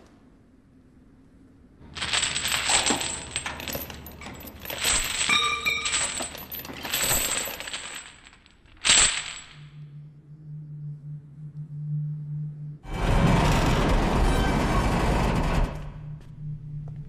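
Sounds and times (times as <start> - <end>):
metal rattling and jingling: 1.8 - 9.7.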